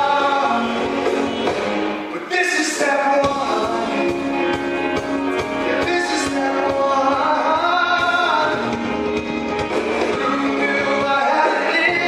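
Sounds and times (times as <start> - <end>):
man singing show tune: 0.0 - 1.2, 2.1 - 4.6, 5.4 - 9.0, 10.2 - 12.0
pit band playing: 0.0 - 12.0.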